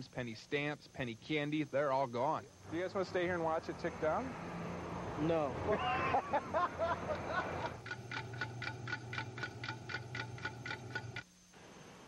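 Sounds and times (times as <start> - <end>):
parking meter ticking: 7.7 - 11.2.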